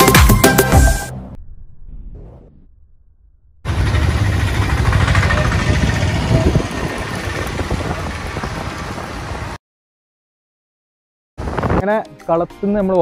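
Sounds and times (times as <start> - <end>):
vehicle engine rumble: 0.9 - 9.6
wind rushing over microphone: 5.3 - 9.6.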